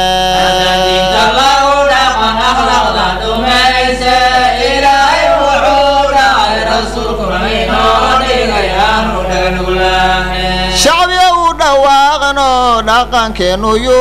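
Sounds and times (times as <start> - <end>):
layered voices chanting: 0.0 - 10.9
steady low hum: 0.0 - 14.0.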